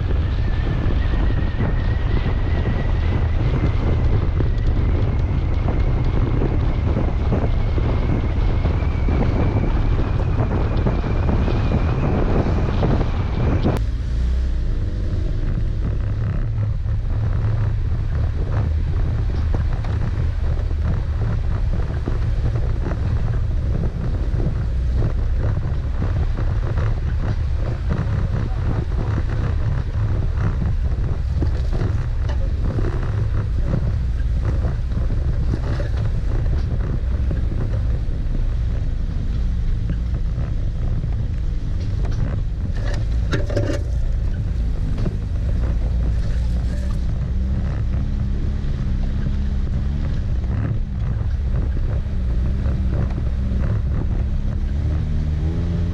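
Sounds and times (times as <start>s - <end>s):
vehicle engine and road rumble: 0.0s - 55.9s
wind buffeting microphone: 0.0s - 55.9s
body knocks and rattles: 15.4s - 55.9s.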